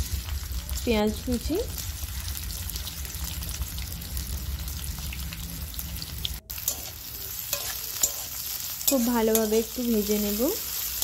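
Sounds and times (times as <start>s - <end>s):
onions sizzling in oil: 0.0s - 11.0s.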